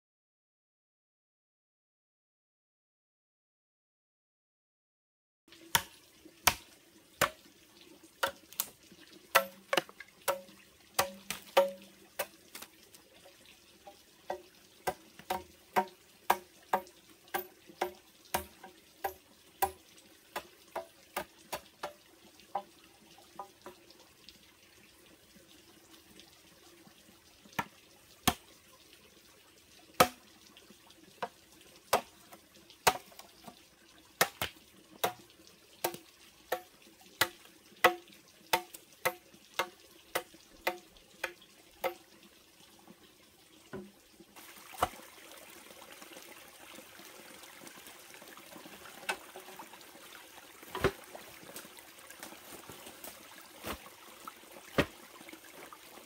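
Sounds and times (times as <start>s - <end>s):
machete chopping bamboo: 5.7s - 7.4s, 9.3s - 12.7s, 14.9s - 19.8s, 30.0s - 30.2s, 32.8s - 33.2s, 34.2s - 35.2s, 50.7s - 51.1s, 53.6s - 53.8s.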